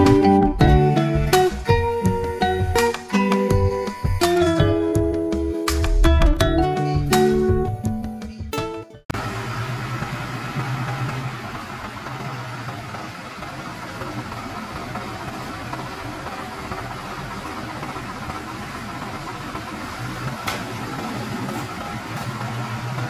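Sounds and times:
diesel engine idling: 0:09.2 - 0:23.0.

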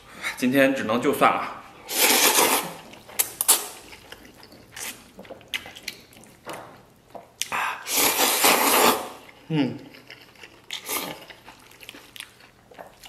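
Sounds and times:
person slurping noodles: 0:01.8 - 0:02.9, 0:07.5 - 0:09.3
person chewing: 0:01.8 - 0:13.0.

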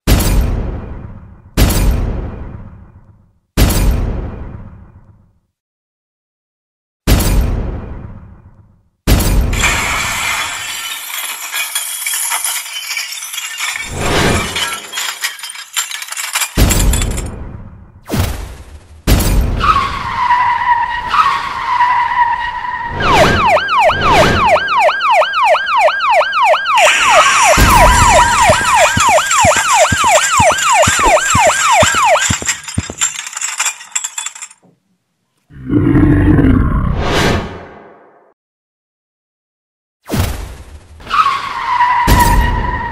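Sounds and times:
emergency vehicle siren yelping: 0:19.7 - 0:32.2.

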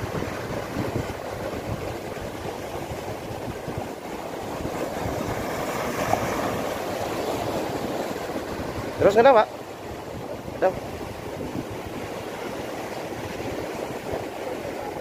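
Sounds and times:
surf breaking on rocks: 0:00.0 - 0:15.0
wind buffeting microphone: 0:00.0 - 0:15.0.

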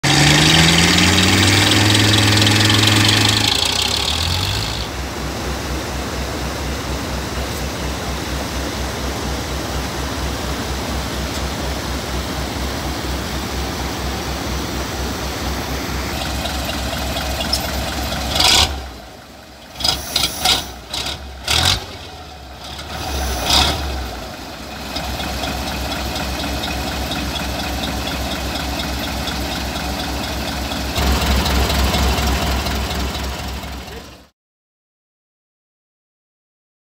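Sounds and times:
truck engine revving: 0:00.0 - 0:06.4, 0:13.3 - 0:34.2.

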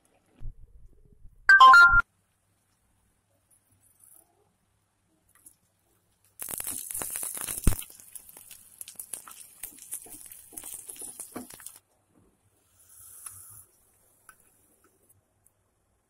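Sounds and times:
oil popping: 0:06.3 - 0:11.8
onions sizzling in hot oil: 0:06.4 - 0:11.8.

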